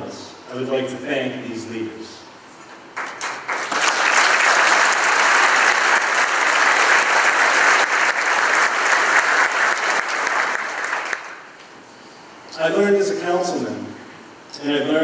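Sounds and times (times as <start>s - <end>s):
audience applauding: 3.0s - 11.5s.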